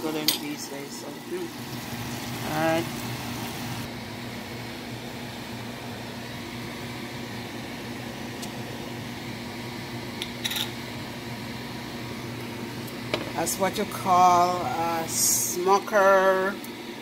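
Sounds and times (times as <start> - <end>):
kitchen appliance motor hum: 0.0 - 4.0.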